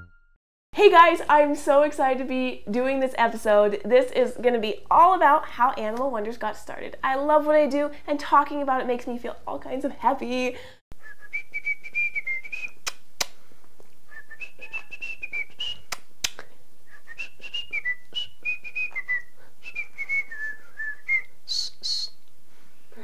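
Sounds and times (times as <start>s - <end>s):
person whistling a tune: 11.0s - 12.8s, 14.1s - 16.0s, 16.9s - 22.2s.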